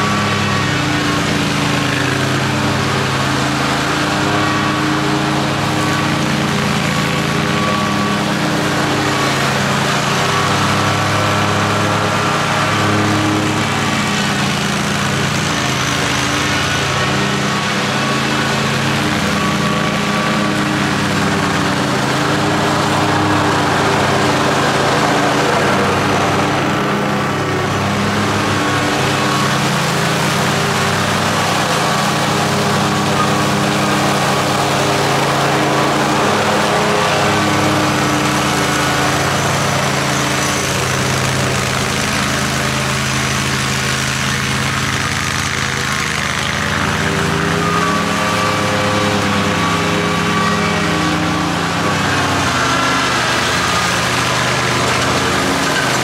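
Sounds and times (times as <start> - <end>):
riding mower engine running: 0.0 - 56.0.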